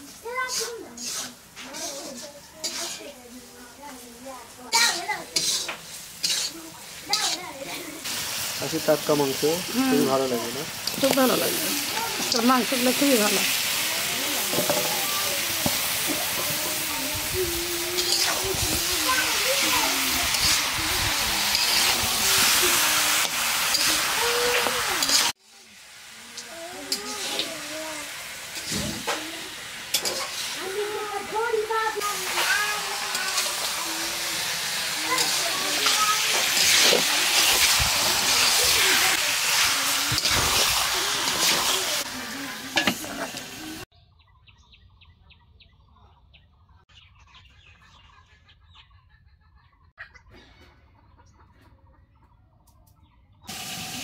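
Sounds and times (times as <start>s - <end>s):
meat sizzling in a pot: 0.0s - 43.9s, 53.5s - 54.0s
chickens clucking: 45.1s - 53.5s.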